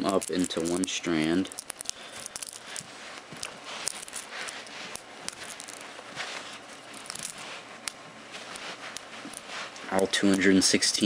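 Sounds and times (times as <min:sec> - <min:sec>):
magnet spheres clicking: 0:00.0 - 0:10.4
hands rustling on carpet: 0:00.2 - 0:10.6.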